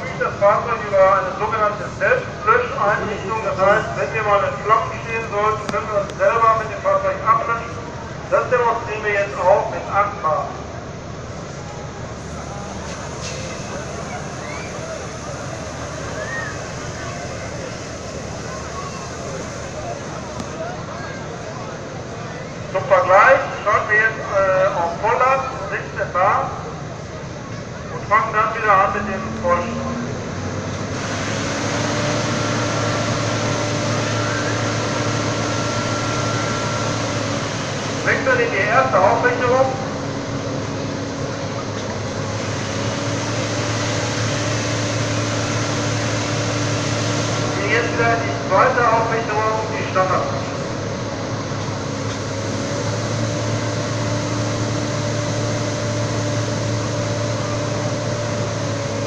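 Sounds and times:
engine and pump humming: 0:00.0 - 0:59.0
water jet rushing: 0:28.0 - 0:40.9, 0:41.9 - 0:50.8.

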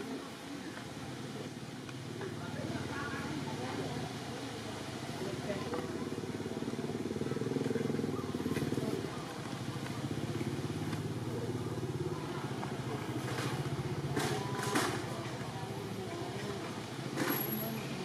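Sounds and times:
motor engine running: 0:05.0 - 0:17.6.

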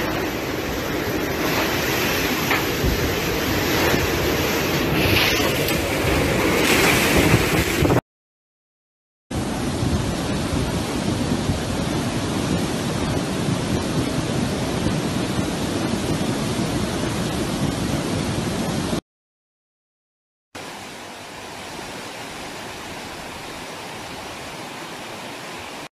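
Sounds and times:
flood torrent rushing: 0:00.0 - 0:08.0, 0:09.4 - 0:19.0, 0:20.6 - 0:25.9
strong wind blowing: 0:00.0 - 0:08.0, 0:09.3 - 0:19.0.

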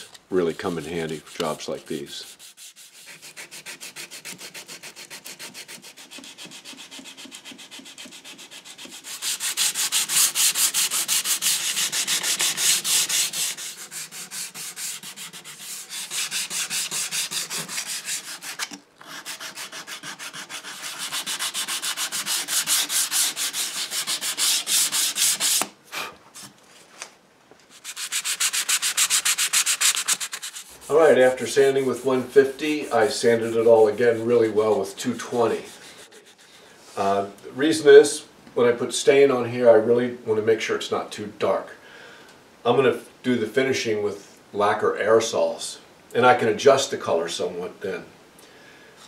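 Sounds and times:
sandpaper scratching wood: 0:00.4 - 0:25.7, 0:27.7 - 0:36.6.

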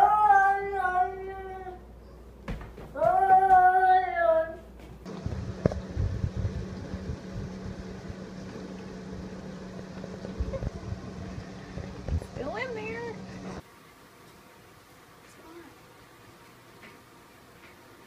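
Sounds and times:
low hum: 0:05.0 - 0:13.6.

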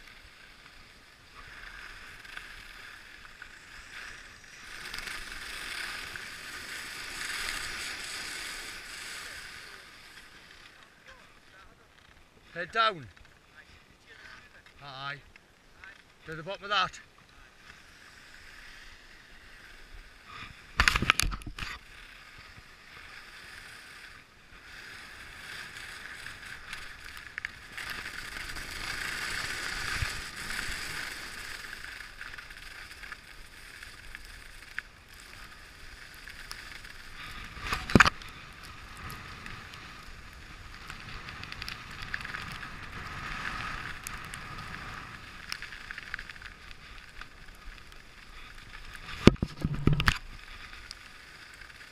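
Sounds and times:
skis scraping over snow: 0:00.0 - 0:51.9.

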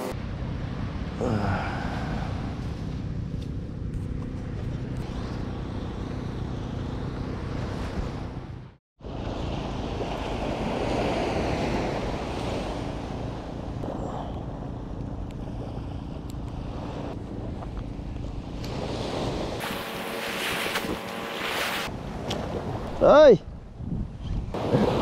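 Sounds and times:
wind rumbling on microphone: 0:00.0 - 0:25.0
small waves washing onto shore: 0:09.0 - 0:17.8, 0:18.4 - 0:23.1.

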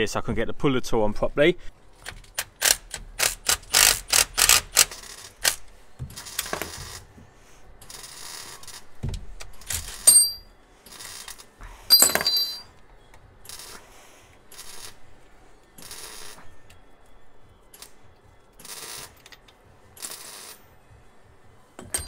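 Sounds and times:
metal tools knocking: 0:10.1 - 0:10.4, 0:11.9 - 0:12.7, 0:21.8 - 0:22.0
ringing metal clinks: 0:10.1 - 0:10.5, 0:11.9 - 0:12.8, 0:21.8 - 0:22.0.

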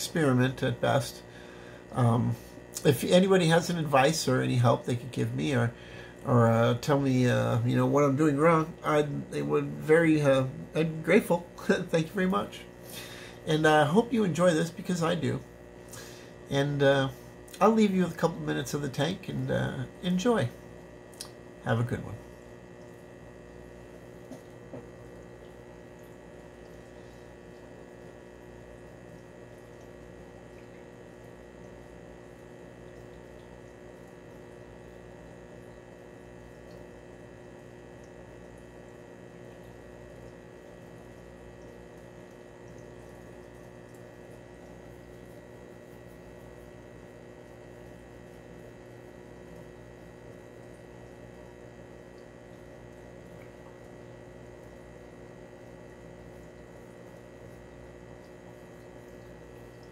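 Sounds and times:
aquarium filter humming: 0:00.0 - 0:59.9
water trickling: 0:17.2 - 0:59.9.

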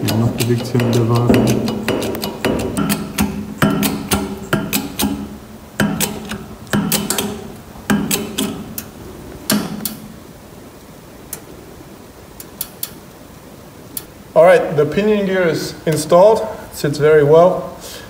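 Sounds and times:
jack clicks with metallic ring: 0:00.0 - 0:08.9.

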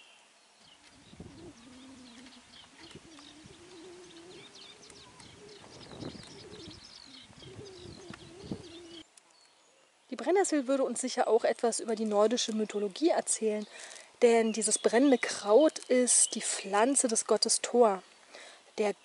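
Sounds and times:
low cooing bird call: 0:00.0 - 0:10.0
small birds chirping: 0:00.0 - 0:19.0.

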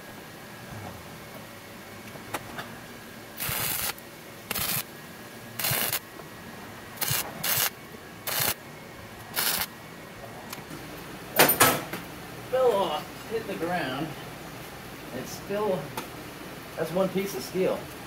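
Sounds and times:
welder arc crackling: 0:03.4 - 0:04.9, 0:05.6 - 0:06.0, 0:07.0 - 0:08.6, 0:09.3 - 0:09.7.

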